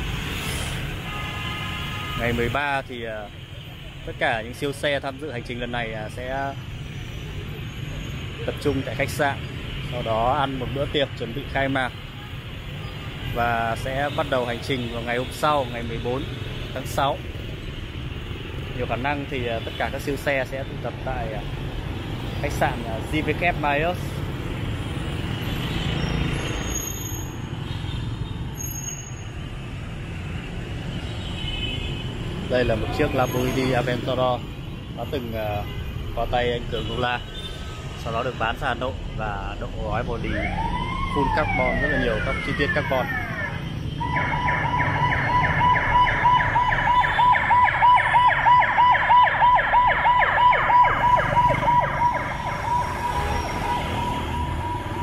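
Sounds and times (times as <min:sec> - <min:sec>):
city traffic rumble: 0:00.0 - 0:55.0
ambulance siren yelping: 0:40.2 - 0:55.0.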